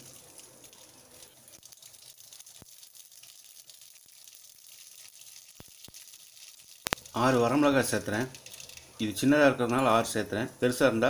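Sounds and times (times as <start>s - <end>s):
seeds sizzling in hot oil: 0.0s - 11.0s.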